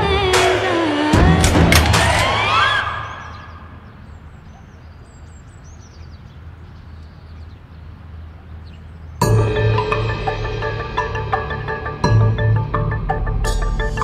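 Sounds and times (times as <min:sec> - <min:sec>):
music: 0:00.0 - 0:03.0, 0:09.2 - 0:14.0
faint high bird chirps: 0:02.5 - 0:09.3.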